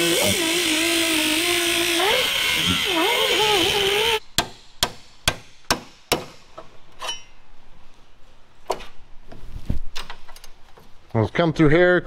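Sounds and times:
angle grinder cutting steel: 0:00.0 - 0:04.2.

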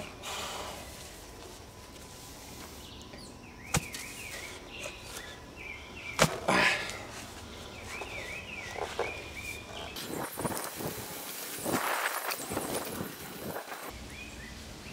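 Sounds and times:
bird calling: 0:02.4 - 0:10.1.

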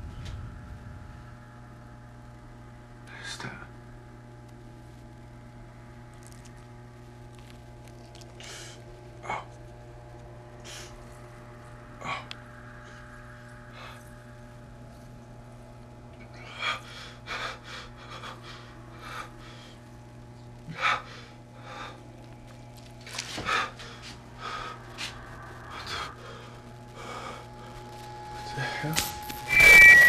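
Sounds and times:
low steady hum: 0:00.0 - 0:30.0.

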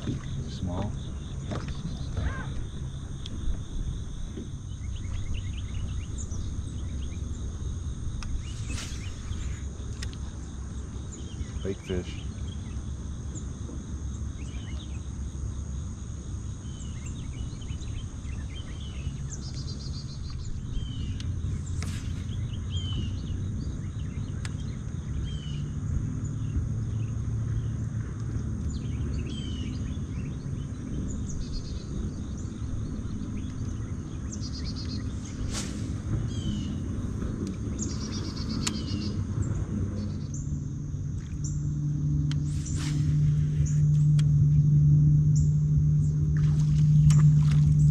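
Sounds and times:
thin high drone: 0:00.0 - 0:13.3, 0:28.9 - 0:47.9
birds chirping: 0:00.0 - 0:15.3, 0:16.4 - 0:40.7
steady low rumble: 0:00.0 - 0:47.9.

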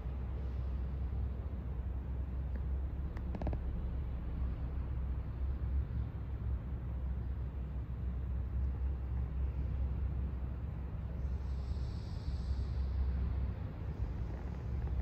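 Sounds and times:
low background rumble: 0:00.0 - 0:15.0
faint hiss: 0:07.3 - 0:15.0.

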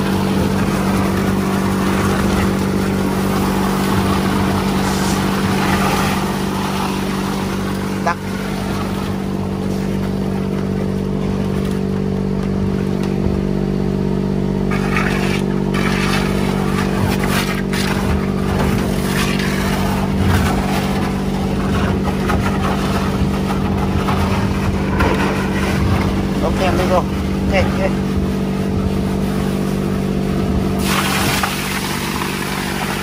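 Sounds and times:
water rushing: 0:00.0 - 0:11.0, 0:29.5 - 0:33.0
motorboat engine droning: 0:00.0 - 0:33.0.

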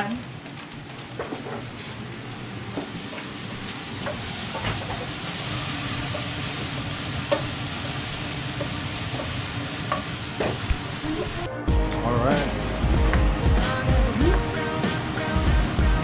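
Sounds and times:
garlic sizzling in oil: 0:00.0 - 0:11.5.

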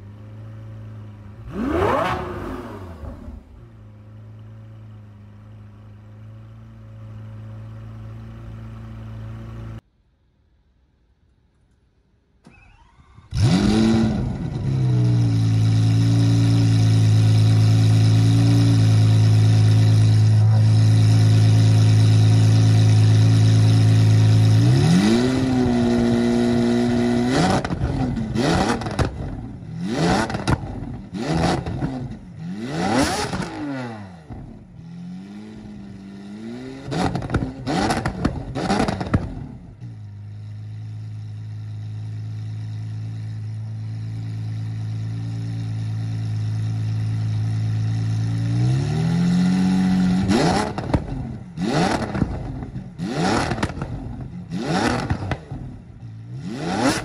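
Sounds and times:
car engine idling: 0:00.0 - 0:13.5, 0:38.0 - 0:48.5
car engine revving: 0:00.5 - 0:04.8, 0:13.3 - 0:41.4, 0:44.2 - 0:57.0.

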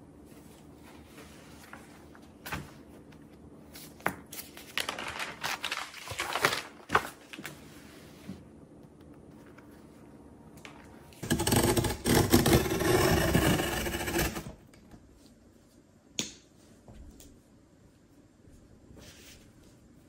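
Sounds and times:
cardboard box scraping: 0:11.2 - 0:14.6.

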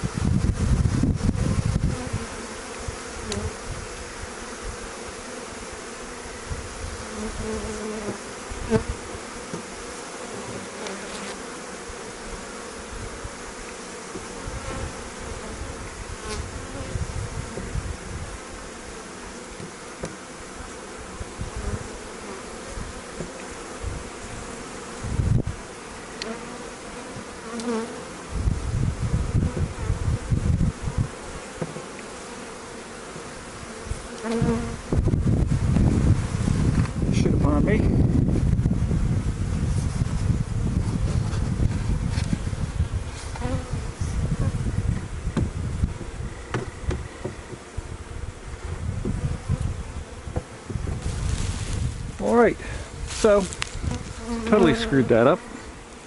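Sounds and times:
honey bees buzzing: 0:00.0 - 0:56.0
dull thump: 0:45.3 - 0:47.7.

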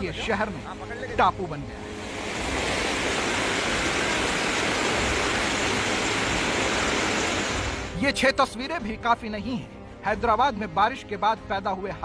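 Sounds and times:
floodwater rushing: 0:00.0 - 0:08.0.

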